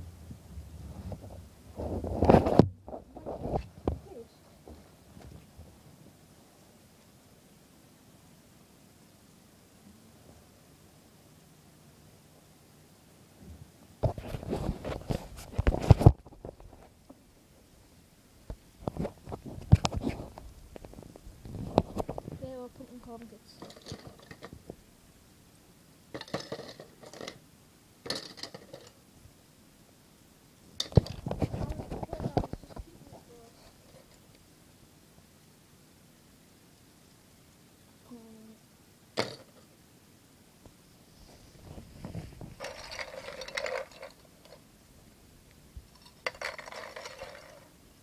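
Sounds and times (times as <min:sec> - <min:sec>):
low rumble of handling: 0:00.0 - 0:06.2, 0:30.8 - 0:34.4, 0:41.0 - 0:44.7
objects clattering and rustling: 0:00.8 - 0:05.8, 0:13.4 - 0:17.2, 0:18.5 - 0:24.8, 0:26.1 - 0:27.4, 0:28.0 - 0:29.0, 0:30.8 - 0:34.4, 0:39.2 - 0:39.7, 0:41.2 - 0:44.7, 0:45.9 - 0:47.8
small balls rattling in a bowl: 0:23.4 - 0:24.7, 0:26.1 - 0:27.4, 0:28.1 - 0:29.0, 0:42.5 - 0:44.6, 0:45.9 - 0:47.8.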